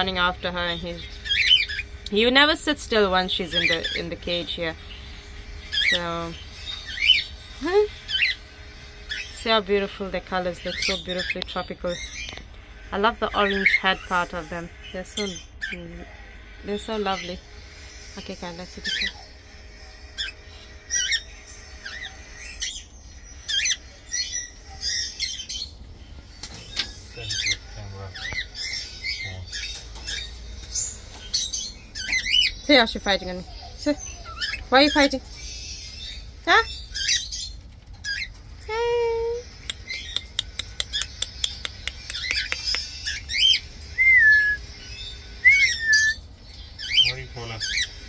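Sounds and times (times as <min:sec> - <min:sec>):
parrots squawking: 0:00.0 - 0:17.5, 0:18.2 - 0:48.0
high bird chirps: 0:00.0 - 0:48.0
pet birds calling: 0:00.0 - 0:48.0
sharp bird clicks: 0:39.6 - 0:43.2.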